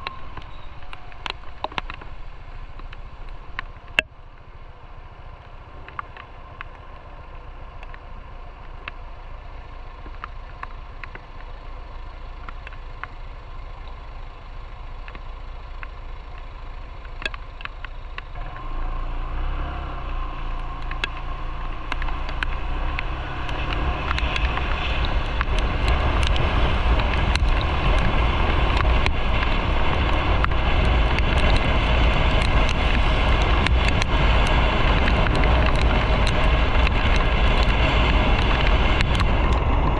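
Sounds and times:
motorcycle riding: 0:00.0 - 0:39.9
wind noise on microphone: 0:20.2 - 0:39.9.

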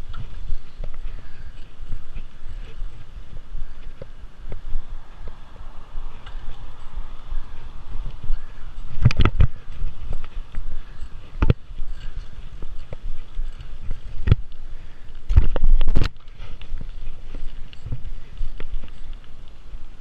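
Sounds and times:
wind and tyre rumble: 0:00.0 - 0:20.0
bike knocks and rattles: 0:08.2 - 0:14.5.

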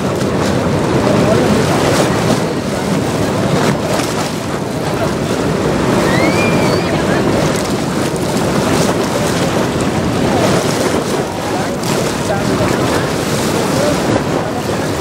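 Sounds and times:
floodwater rushing: 0:00.0 - 0:15.0
wind buffeting microphone: 0:00.0 - 0:15.0
high whistle: 0:06.0 - 0:07.1.

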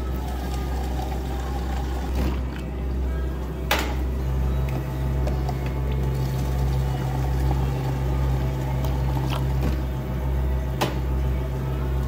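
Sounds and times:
steady low hum: 0:00.0 - 0:12.0
water pouring into plastic cups: 0:00.1 - 0:02.7, 0:05.9 - 0:09.8.

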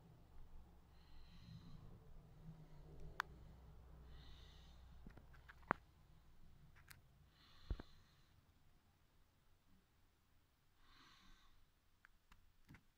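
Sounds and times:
soft breath-like hisses: 0:00.9 - 0:05.1, 0:07.2 - 0:08.4, 0:10.8 - 0:11.7.

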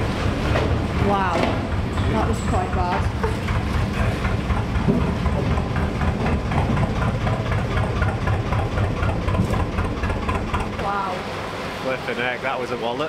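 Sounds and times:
diesel boat engine rumbling: 0:00.0 - 0:13.0.

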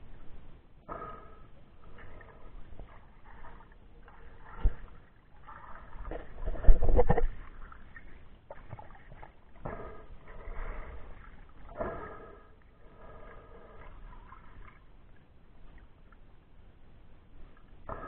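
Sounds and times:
water swishing and sloshing: 0:00.0 - 0:18.0.

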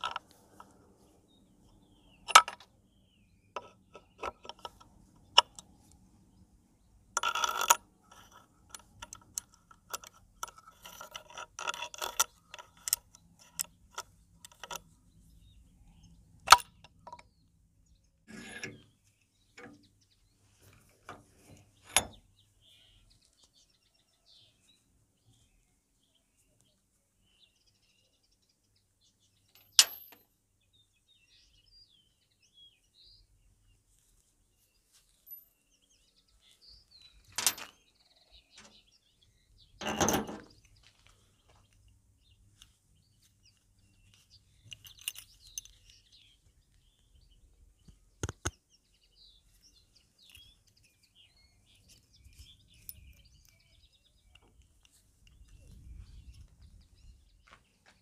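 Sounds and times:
metal clicks and knocks: 0:00.0 - 0:00.7, 0:02.3 - 0:02.7, 0:03.6 - 0:05.7, 0:07.2 - 0:14.8, 0:16.4 - 0:17.3, 0:19.6 - 0:19.9, 0:21.1 - 0:22.2, 0:37.2 - 0:37.8, 0:39.8 - 0:40.8
faint bird chirps: 0:13.1 - 0:29.8, 0:40.5 - 0:58.0.

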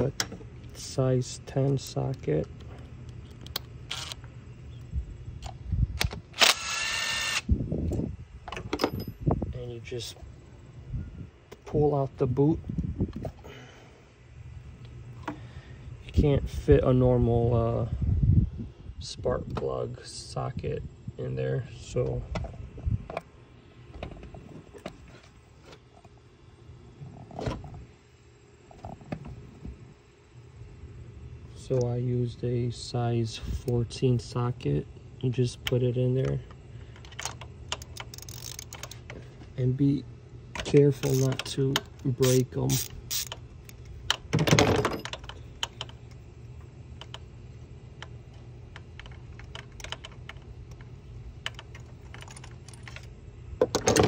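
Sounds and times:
low steady hum: 0:00.0 - 0:54.0
metal socket and wrench clicking: 0:37.0 - 0:39.0, 0:40.6 - 0:44.2.

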